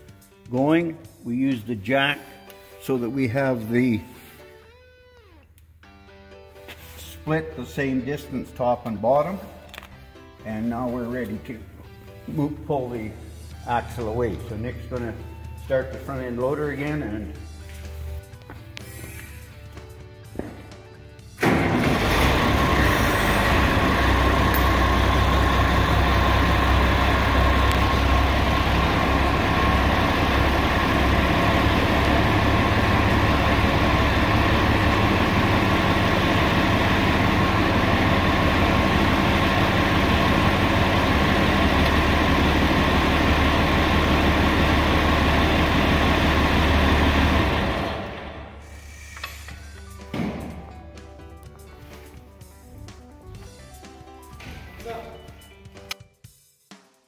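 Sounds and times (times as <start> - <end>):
loader engine running: 21.4 - 48.7.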